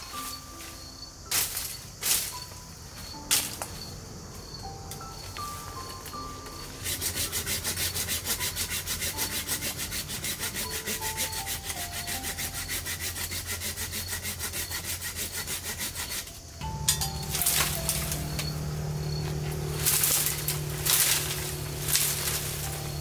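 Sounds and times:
hand saw cutting bamboo: 6.8s - 23.0s.

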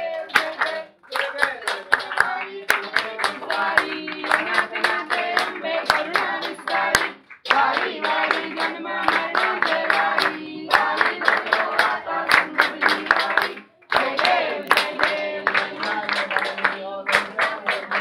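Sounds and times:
group of people singing: 0.0s - 18.0s
steady hand clapping: 0.0s - 18.0s.

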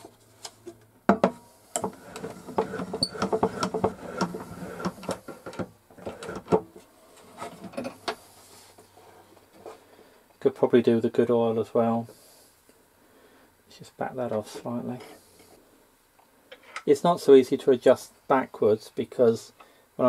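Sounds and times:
clicking and knocking of gramophone: 1.1s - 6.7s.

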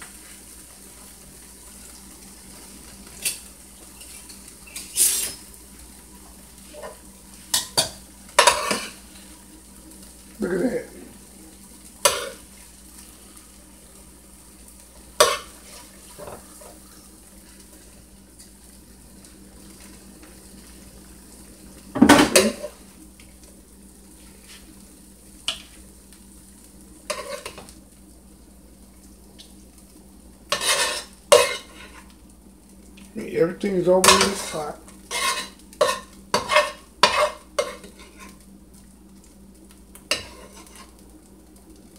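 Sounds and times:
hot pan sizzling: 0.0s - 41.9s
utensils and cookware clattering: 3.1s - 5.6s, 6.7s - 9.0s, 12.0s - 12.4s, 15.2s - 16.8s, 22.0s - 22.8s, 27.1s - 27.7s, 30.5s - 32.1s, 33.8s - 38.4s, 40.1s - 40.9s.

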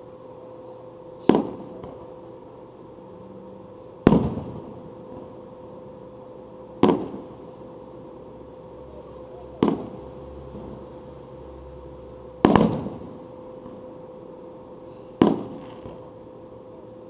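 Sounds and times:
firework shells booming: 1.2s - 2.1s, 4.0s - 5.4s, 6.8s - 7.5s, 9.5s - 10.1s, 12.4s - 13.8s, 15.2s - 16.1s.

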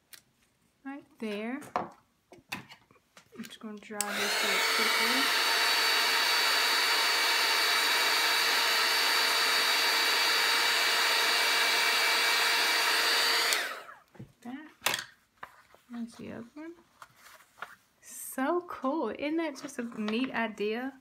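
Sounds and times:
handheld dryer blowing air: 4.0s - 14.0s.

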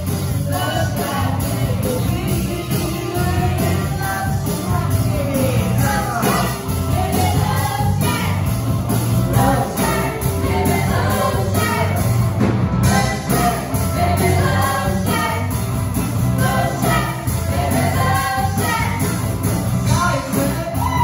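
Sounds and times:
drums: 0.0s - 21.0s
electric guitars: 0.0s - 21.0s
keyboard: 0.0s - 21.0s.

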